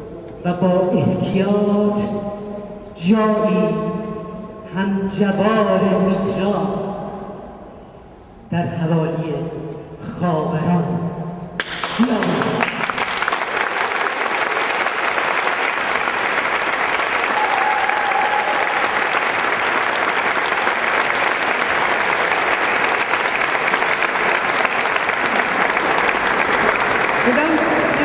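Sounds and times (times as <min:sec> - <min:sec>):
audience applauding: 0:11.6 - 0:28.0.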